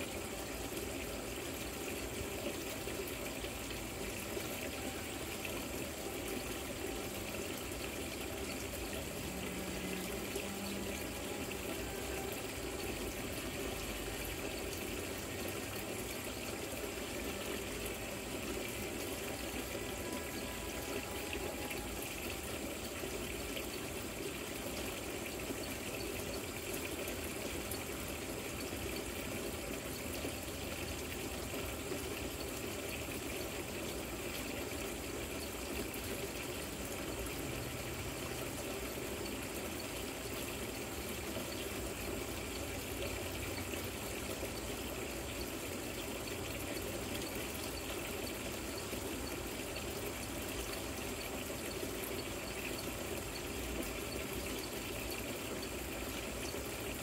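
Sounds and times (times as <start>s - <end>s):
fountain water trickling and splashing: 0.0s - 57.0s.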